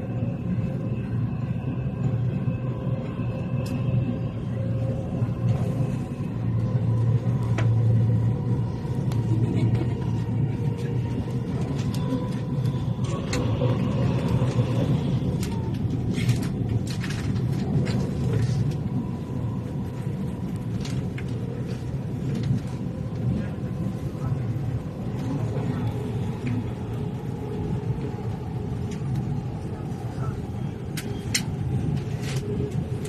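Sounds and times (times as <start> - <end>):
train rumbling inside carriage: 0.0 - 33.0.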